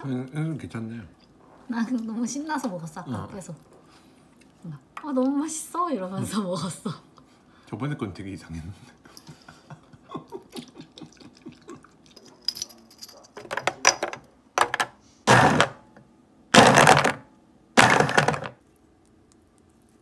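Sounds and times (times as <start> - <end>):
countertop blender pulsing: 15.3 - 15.8, 16.6 - 17.2, 17.8 - 18.5.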